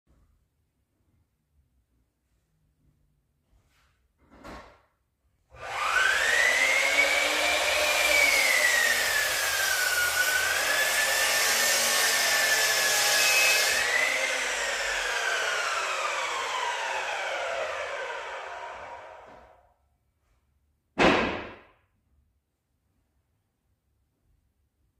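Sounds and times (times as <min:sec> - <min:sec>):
power tool motor whine: 0:05.6 - 0:19.4.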